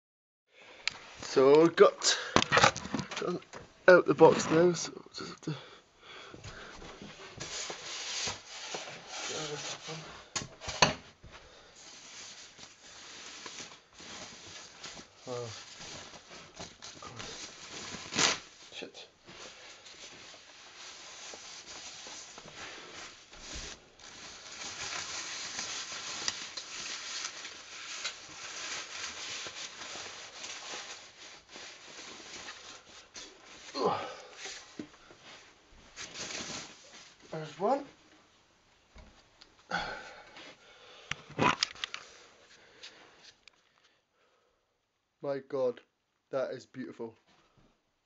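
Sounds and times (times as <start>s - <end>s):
foam wrap crinkling: 11.5s - 37.5s
packing material rustling: 11.7s - 37.8s.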